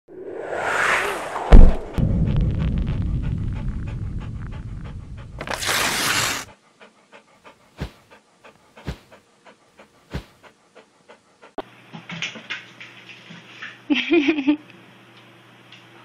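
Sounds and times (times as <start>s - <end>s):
loud swish: 0.1s - 6.5s, 8.8s - 9.1s
low rumble: 0.1s - 6.5s
dog panting: 6.4s - 11.6s.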